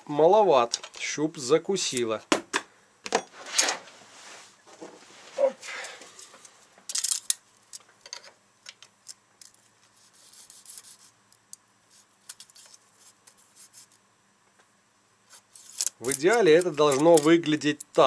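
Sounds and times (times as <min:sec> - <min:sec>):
metal feeler gauge clicks and scrapes: 0:12.2 - 0:14.0, 0:15.3 - 0:18.0.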